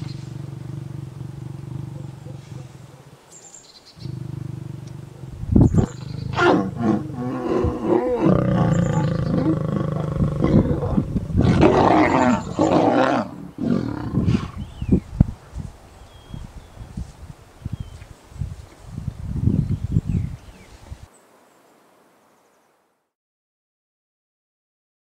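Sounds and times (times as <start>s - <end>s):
lions growling and snarling: 0.0s - 3.3s, 4.0s - 14.8s.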